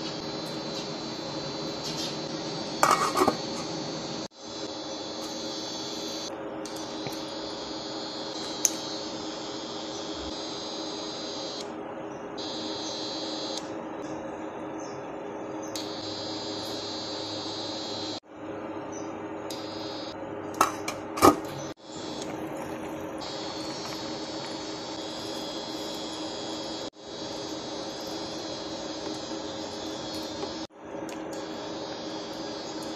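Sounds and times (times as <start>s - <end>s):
kitchen appliance droning hum: 0.0s - 32.9s
pot boiling: 20.6s - 32.9s.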